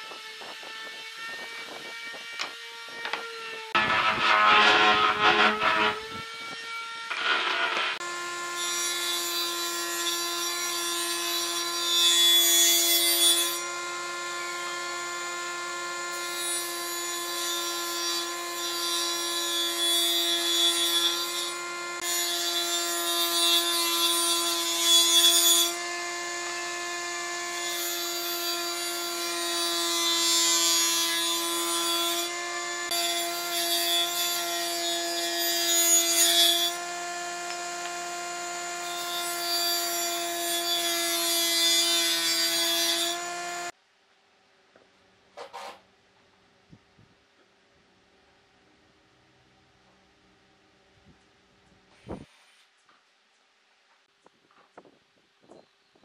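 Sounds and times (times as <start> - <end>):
saw cutting wood: 0.0 - 43.7
table saw motor whine: 0.0 - 43.7.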